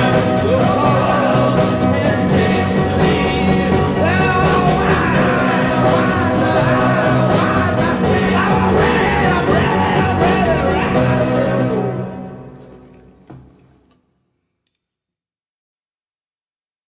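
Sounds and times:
steady drum beat: 0.0s - 11.8s.

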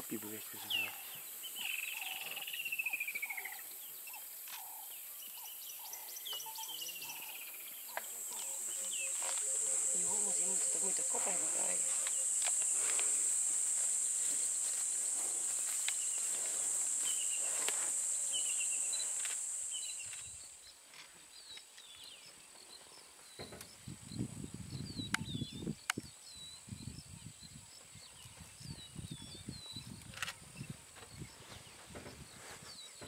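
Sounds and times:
small birds chirping: 0.0s - 33.0s
high-pitched insect drone: 0.7s - 4.8s, 5.8s - 20.5s.

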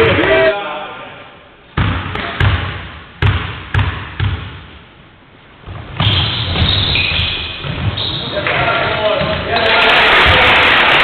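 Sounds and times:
din of hall and players: 0.0s - 11.0s
basketball bouncing on wooden floor: 1.8s - 4.6s, 5.6s - 9.4s.

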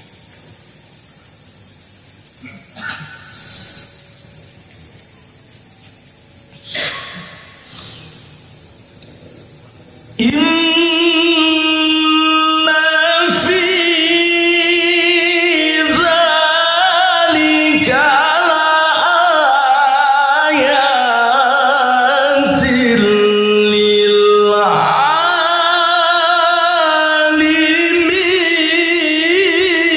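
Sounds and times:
man chanting into a microphone: 10.2s - 29.9s.

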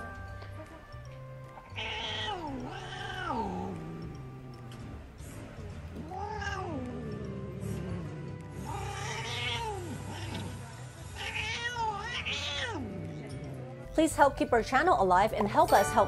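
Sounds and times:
cat yowling: 1.6s - 3.8s, 6.0s - 7.0s, 8.6s - 10.4s, 11.2s - 13.0s.

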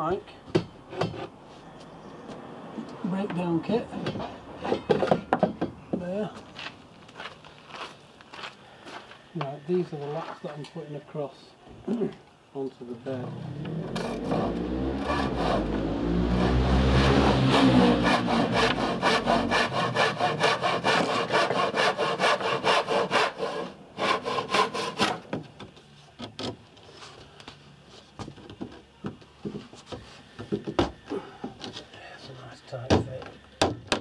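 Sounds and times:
handsaw cutting wood: 13.6s - 25.3s.

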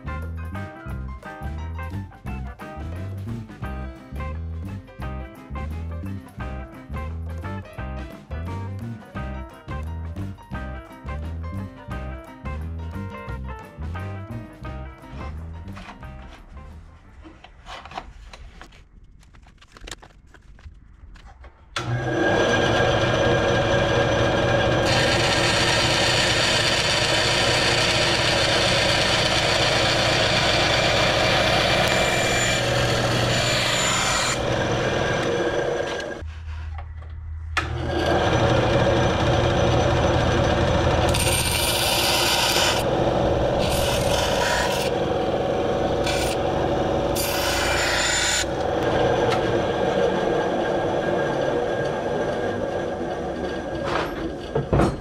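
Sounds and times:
bandsaw motor and blade hum: 21.8s - 36.2s, 37.6s - 54.6s
bandsaw rasping through metal: 22.0s - 36.2s, 37.8s - 49.5s.

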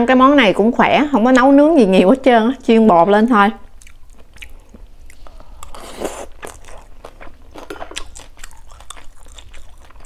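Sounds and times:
person chewing food: 3.7s - 10.0s.

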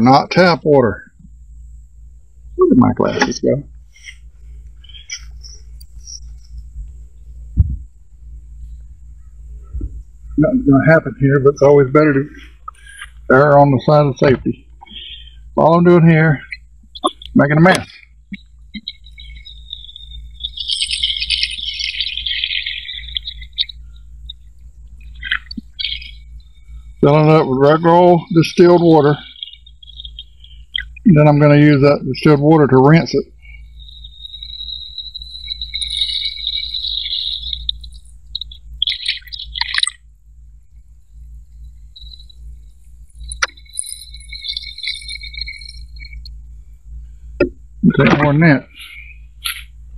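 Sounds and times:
cricket trilling: 0.0s - 49.9s
faint low rumble: 0.0s - 49.9s
bird chirping: 2.6s - 7.3s, 8.5s - 40.0s, 41.1s - 46.6s, 47.8s - 49.8s
water trickling into battery: 37.3s - 40.0s.

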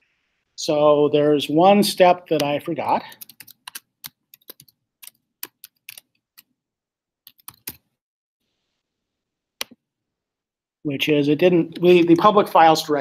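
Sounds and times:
typing on a computer keyboard: 3.1s - 6.5s, 7.3s - 7.8s.

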